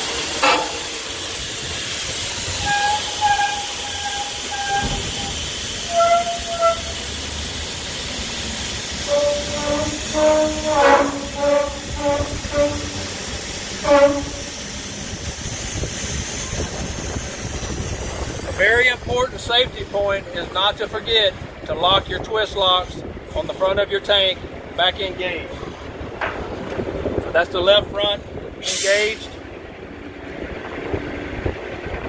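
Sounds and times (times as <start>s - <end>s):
short horn-like tones: 0.0s - 1.2s, 2.6s - 7.1s, 9.0s - 14.7s
air hissing from airbag: 0.0s - 18.4s, 28.6s - 29.4s.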